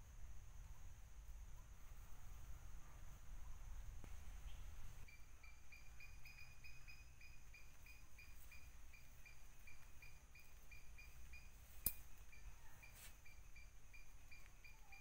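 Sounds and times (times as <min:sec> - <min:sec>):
high insect hiss: 0:00.0 - 0:15.0
high chirping call: 0:05.0 - 0:15.0
sharp snap of sticks: 0:11.8 - 0:12.3.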